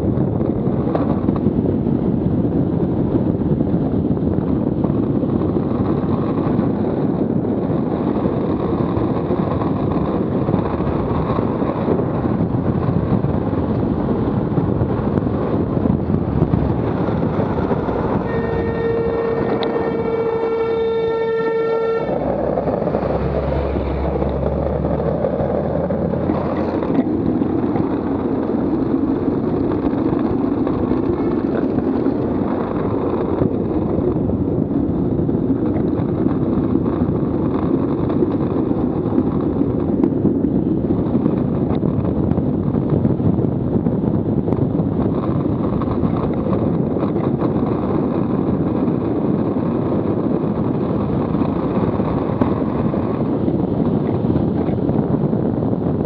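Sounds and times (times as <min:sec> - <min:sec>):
truck engine rumbling: 0:00.0 - 0:56.0
wheels rolling on asphalt: 0:00.0 - 0:56.0
wind rushing over microphone: 0:00.0 - 0:56.0.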